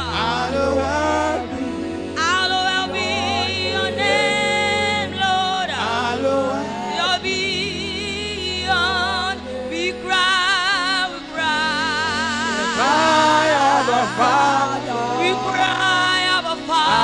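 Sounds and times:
sustained musical backing: 0.0 - 17.0
woman singing into a microphone: 0.0 - 17.0.

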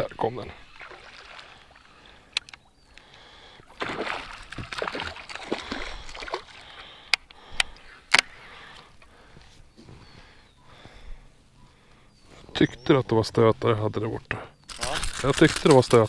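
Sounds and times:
fish splashing and thrashing: 0.6 - 9.4, 14.7 - 16.0
sharp clicks: 2.3 - 3.1, 7.0 - 8.3.

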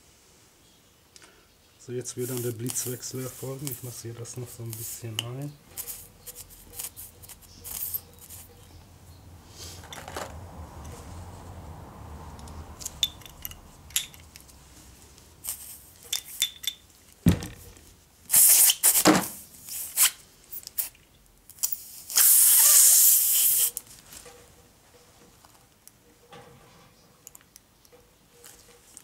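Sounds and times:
air hissing from tyre: 9.4 - 10.0, 15.4 - 15.9, 18.3 - 20.2, 21.7 - 23.8
tool handling clicks: 12.4 - 14.6.

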